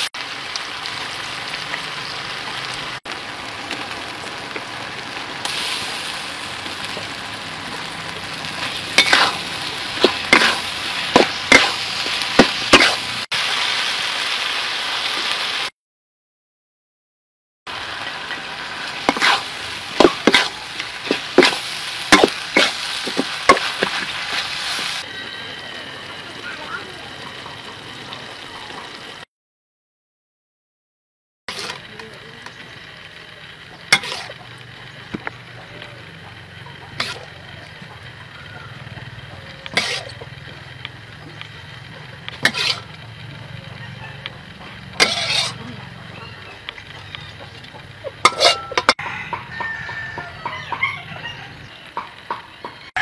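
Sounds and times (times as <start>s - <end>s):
food sizzling in a wok: 0.0s - 15.7s, 17.7s - 29.2s, 31.5s - 53.0s
hiss burst: 5.4s - 6.6s.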